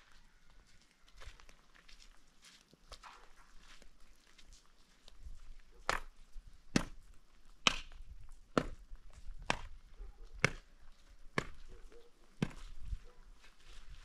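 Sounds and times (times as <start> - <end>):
shovel striking hard dry earth: 5.8 - 9.8, 10.4 - 10.7, 11.3 - 11.7, 12.4 - 12.9.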